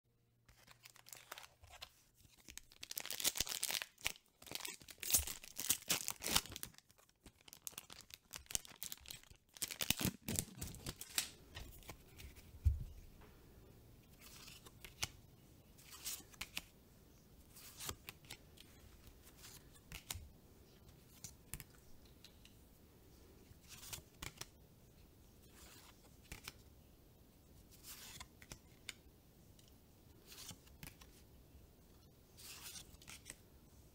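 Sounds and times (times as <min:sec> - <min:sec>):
foil wrapper tearing and crinkling: 0:02.4 - 0:11.3
cards sliding and clicking: 0:15.8 - 0:16.7, 0:17.4 - 0:20.2, 0:23.6 - 0:24.5, 0:25.4 - 0:26.6, 0:27.8 - 0:29.0, 0:30.2 - 0:31.1, 0:32.4 - 0:33.4.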